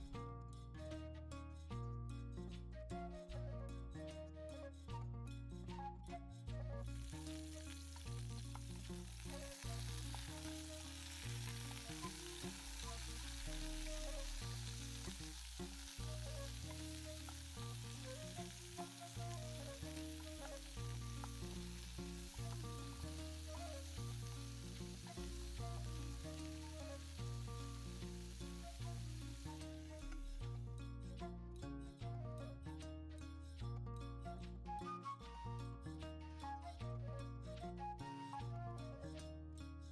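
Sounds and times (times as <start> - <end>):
music of held low notes: 0.0 - 39.9
potatoes sizzling in a pot: 7.0 - 30.6.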